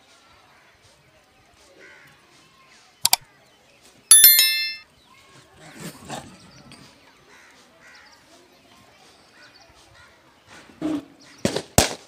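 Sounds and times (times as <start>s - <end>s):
bell ding: 4.1s - 4.8s.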